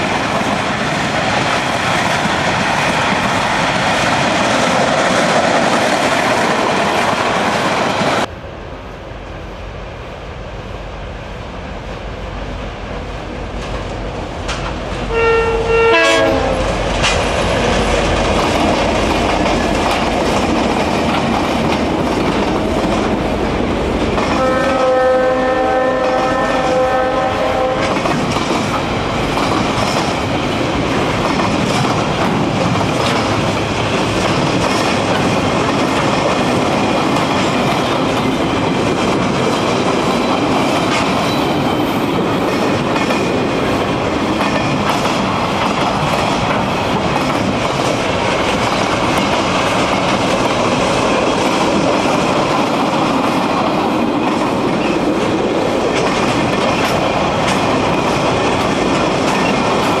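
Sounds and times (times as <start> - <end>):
freight train wheels rumbling on rails: 0.0 - 60.0
wheels clicking over rail joints: 27.8 - 60.0.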